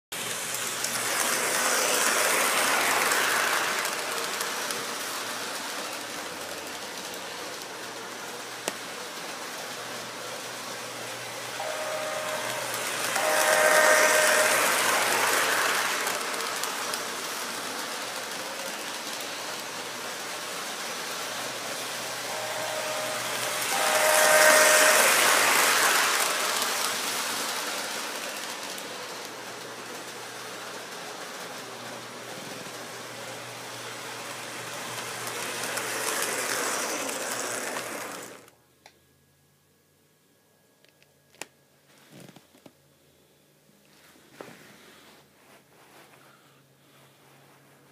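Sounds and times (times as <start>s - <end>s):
electronic train horn: 11.6s - 16.0s, 22.3s - 26.4s
model train wheel rumble: 34.2s - 38.5s.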